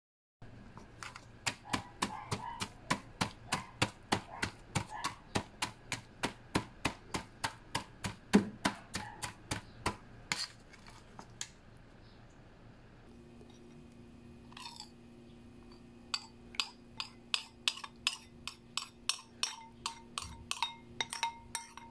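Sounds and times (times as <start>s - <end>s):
knife chopping on cutting board: 1.4s - 10.5s.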